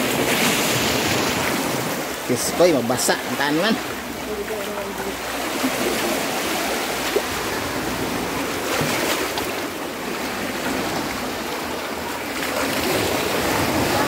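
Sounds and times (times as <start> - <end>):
rushing water: 0.0 - 14.0.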